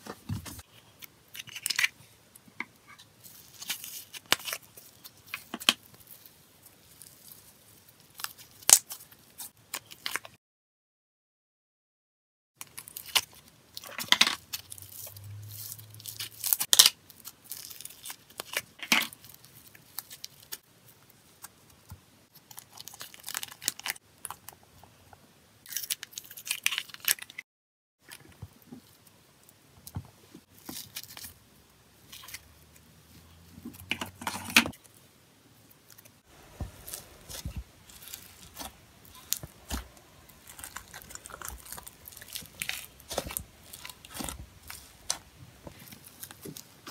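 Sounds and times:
slime crackling and popping: 35.9s - 46.9s
fingers squishing slime: 36.5s - 46.6s.

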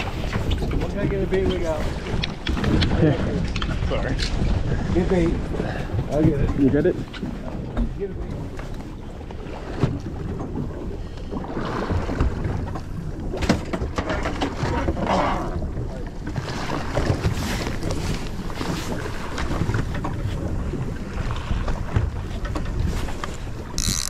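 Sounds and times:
wind buffeting microphone: 0.0s - 14.0s
water washing against hull: 0.0s - 24.0s.

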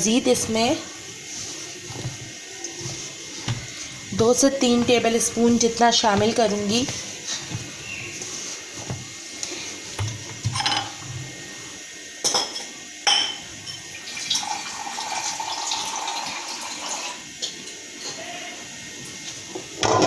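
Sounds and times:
clinks against glass bowl: 12.2s - 13.9s.

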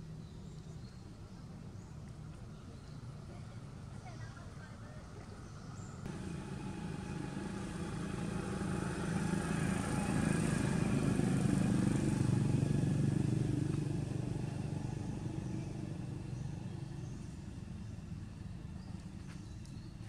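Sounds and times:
vehicle engine passing by: 6.0s - 18.5s.

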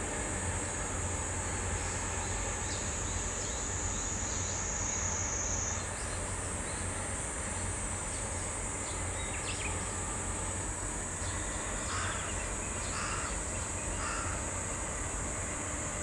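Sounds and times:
high insect buzz: 1.7s - 14.8s.

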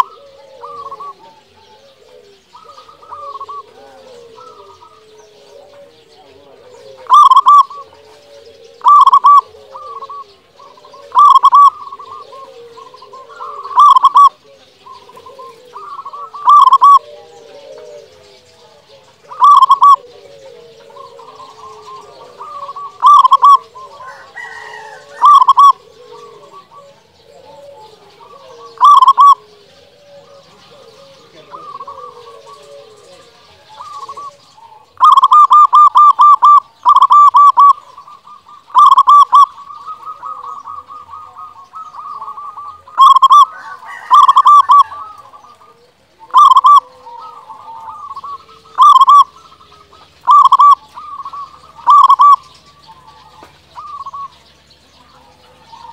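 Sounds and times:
dove stuttering coos: 0.0s - 55.9s
soft bird calls: 0.0s - 55.9s.

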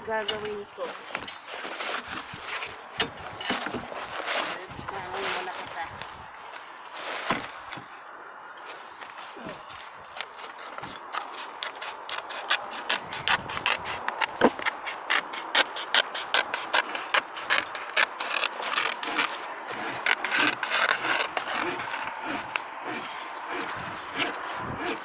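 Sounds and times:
sheet rustling and scraping: 0.2s - 7.9s.

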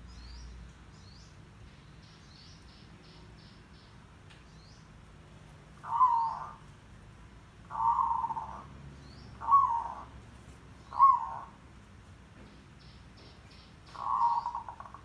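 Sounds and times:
dove cooing: 5.8s - 6.7s, 7.6s - 10.2s, 10.8s - 11.6s, 13.9s - 15.0s.

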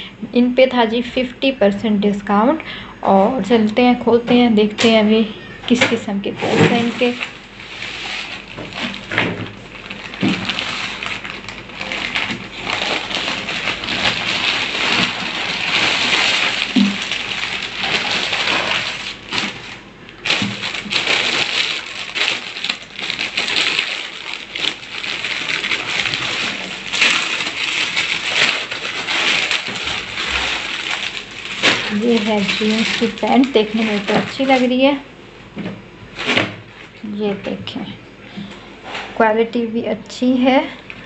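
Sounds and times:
plastic packaging crinkling: 5.7s - 35.0s.

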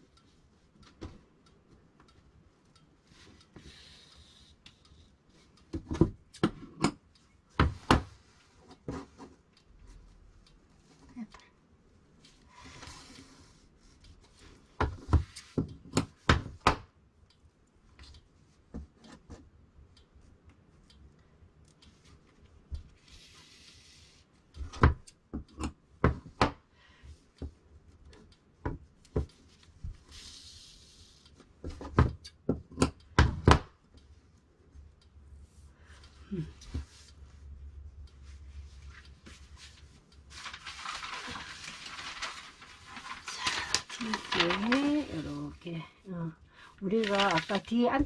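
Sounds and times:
fabric rustling: 38.2s - 45.7s, 46.8s - 48.0s.

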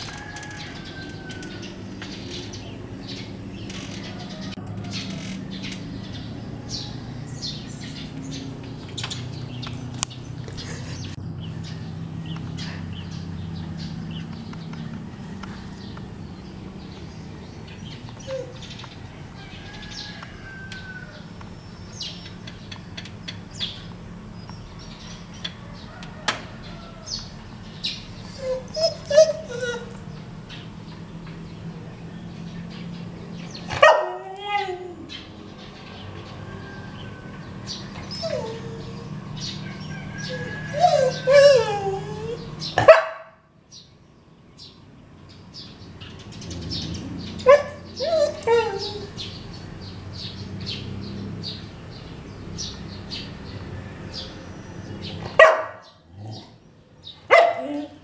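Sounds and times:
dog whining and yipping: 18.2s - 18.7s, 28.2s - 30.2s, 33.7s - 35.3s, 37.9s - 39.2s, 40.2s - 43.0s, 47.4s - 49.4s, 57.3s - 58.0s.

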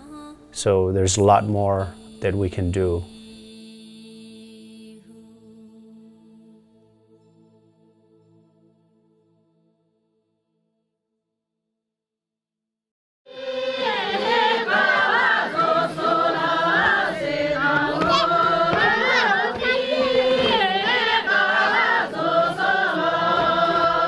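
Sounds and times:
group of voices singing: 0.0s - 6.6s, 13.3s - 24.0s.

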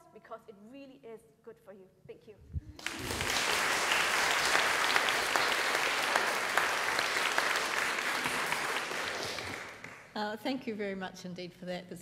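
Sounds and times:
audience clapping: 2.8s - 10.2s.

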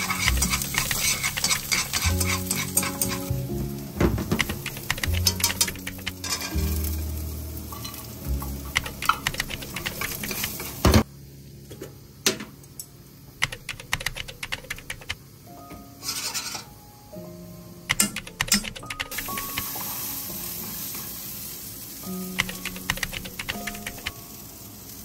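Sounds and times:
kitchen utensils clicking: 0.0s - 3.4s, 4.3s - 6.7s, 7.7s - 10.9s, 17.9s - 19.6s
background music: 0.0s - 11.0s, 13.6s - 24.6s
sizzling: 0.0s - 13.6s, 15.9s - 25.0s.

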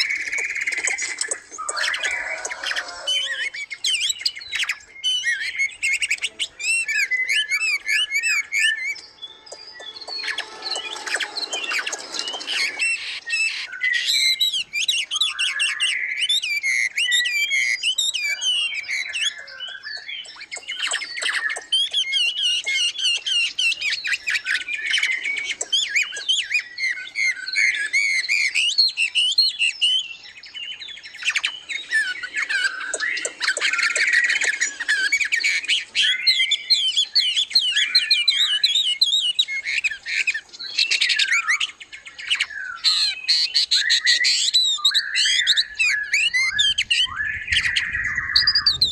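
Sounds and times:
songbirds chirping and singing: 0.0s - 48.9s.

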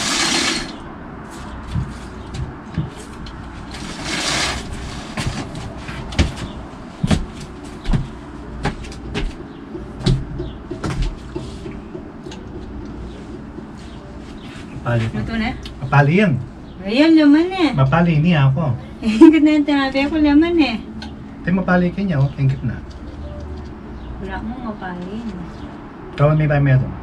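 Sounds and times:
sliding glass door on track: 0.0s - 0.8s, 3.7s - 5.6s.

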